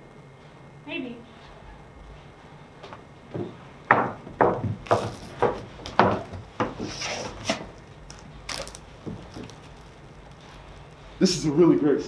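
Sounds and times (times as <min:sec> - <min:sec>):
footsteps on hollow wooden stage: 0:02.8 - 0:10.9
knock on wooden bench: 0:03.4 - 0:06.8.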